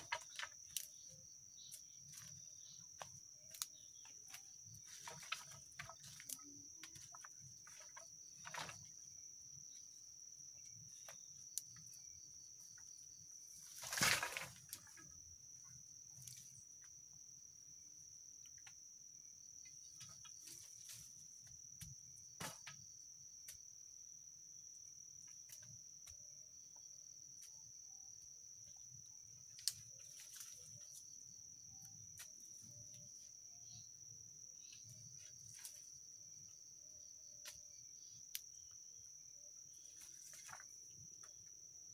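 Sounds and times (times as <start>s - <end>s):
bamboo poles clicking and knocking: 0.0s - 9.1s, 10.7s - 12.0s, 13.8s - 15.2s, 25.2s - 26.3s, 29.4s - 31.1s
insects trilling: 0.0s - 41.9s.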